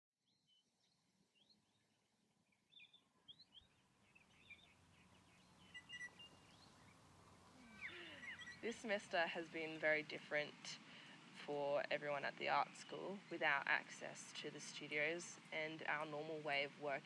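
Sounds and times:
birds chirping and twittering: 0:00.3 - 0:10.2.

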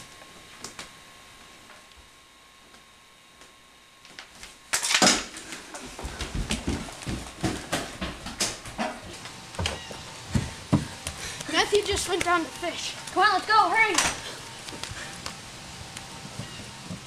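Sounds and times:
footsteps on hardwood floor: 0:05.5 - 0:13.2, 0:14.0 - 0:17.0.

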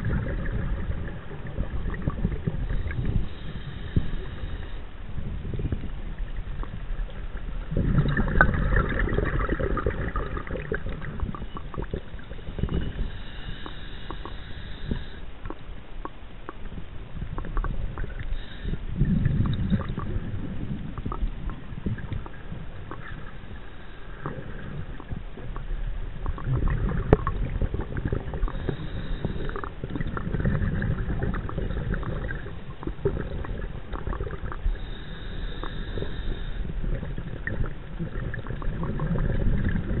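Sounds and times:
underwater breath bubbling: 0:00.0 - 0:16.6, 0:17.2 - 0:40.0
faint clicks and crackle: 0:05.6 - 0:40.0.

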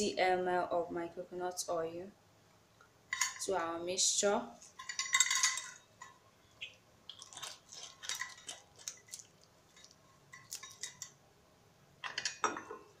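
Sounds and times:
utensils clinking on metal containers: 0:04.8 - 0:05.8.

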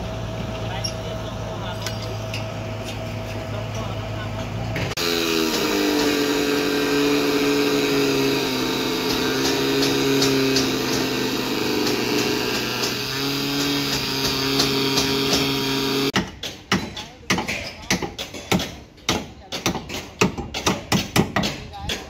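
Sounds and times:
angle grinder running: 0:04.9 - 0:16.2.

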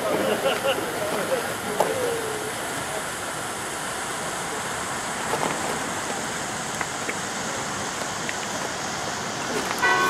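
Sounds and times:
hiss of burning fireworks: 0:00.0 - 0:10.0.

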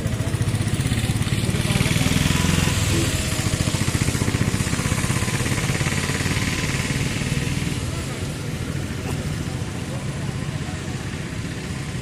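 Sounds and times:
engine running with low throb: 0:00.0 - 0:12.0.

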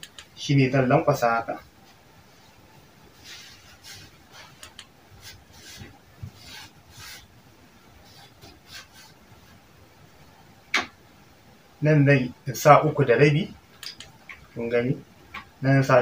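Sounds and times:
denim fabric rustling: 0:01.8 - 0:09.6.

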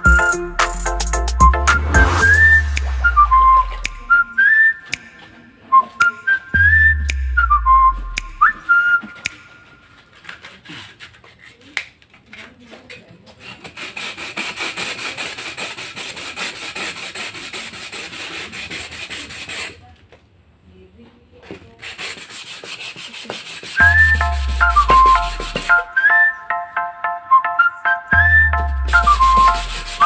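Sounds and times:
glass scraping on sandpaper: 0:09.8 - 0:11.6, 0:13.3 - 0:19.8, 0:21.8 - 0:25.9, 0:28.9 - 0:30.0.

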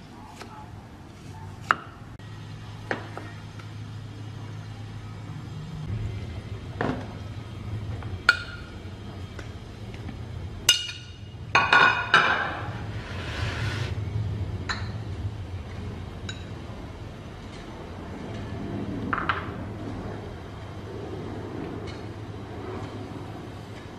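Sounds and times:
brief scraping: 0:12.6 - 0:14.0.

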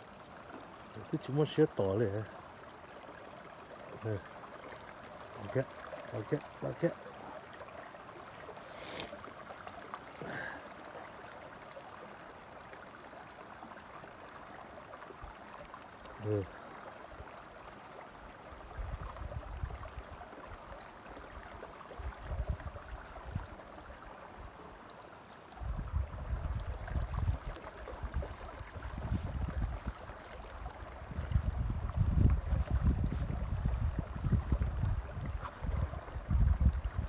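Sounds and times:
water trickling over rocks: 0:00.0 - 0:37.0
wind buffeting microphone: 0:25.6 - 0:30.0, 0:31.0 - 0:37.0.

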